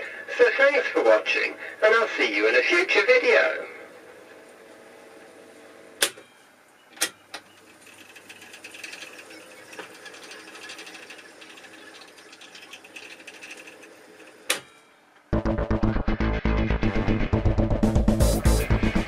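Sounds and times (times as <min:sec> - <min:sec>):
fast mechanical chatter: 0:07.6 - 0:14.5.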